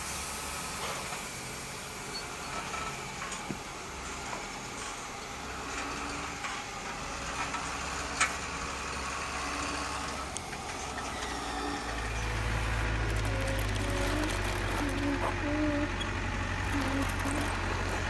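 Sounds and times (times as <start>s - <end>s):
low hum: 10.7s - 18.0s
loud low drone: 11.2s - 18.0s.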